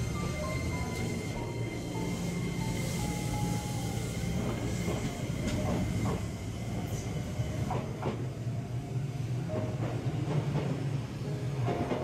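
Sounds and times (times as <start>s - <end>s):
electric train humming: 0.0s - 12.0s.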